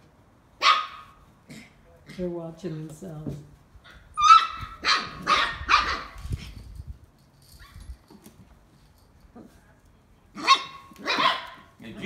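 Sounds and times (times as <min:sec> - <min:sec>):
puppies yipping: 0:03.9 - 0:06.2, 0:10.4 - 0:11.7.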